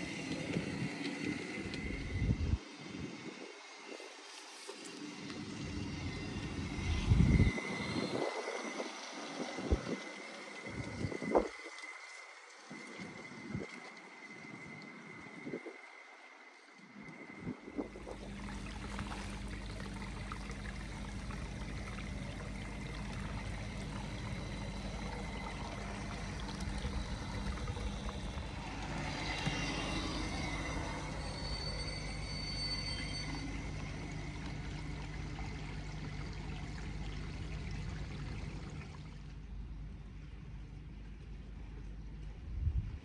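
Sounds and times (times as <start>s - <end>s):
model train humming on track: 0.0s - 38.8s
wheels whining and squealing: 0.0s - 39.3s
rain hissing: 17.9s - 37.0s.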